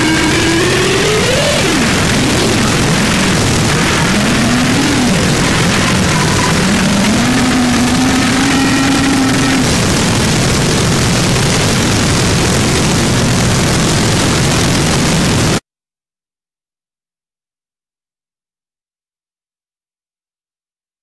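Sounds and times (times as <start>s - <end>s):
distorted static noise music: 0.0s - 15.6s.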